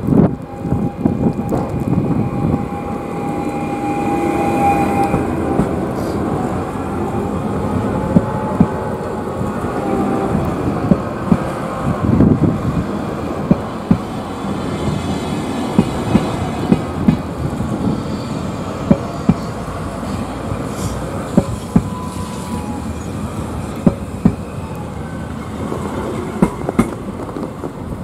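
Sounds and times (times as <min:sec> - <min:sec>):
train rumbling: 0:00.0 - 0:28.0
wheels clicking over rail joints: 0:10.3 - 0:17.9, 0:23.5 - 0:28.0.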